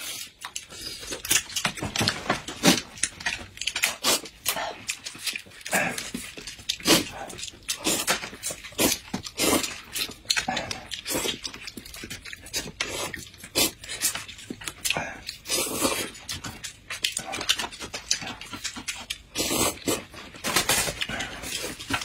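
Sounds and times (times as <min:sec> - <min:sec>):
wet chewing and mouth smacks: 0:00.0 - 0:22.0
slurping noodles: 0:05.7 - 0:11.5, 0:12.5 - 0:14.1, 0:14.9 - 0:16.4, 0:19.2 - 0:20.2.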